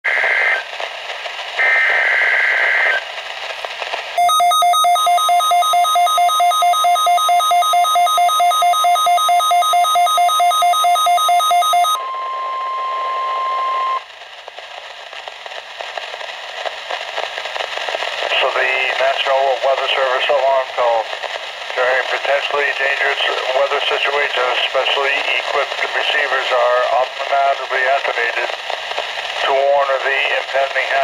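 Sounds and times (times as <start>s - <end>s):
data header bursts: 4.2s - 14.0s
pulsing two-tone alert beep: 4.2s - 14.0s
steady warning alarm tone: 4.2s - 14.0s.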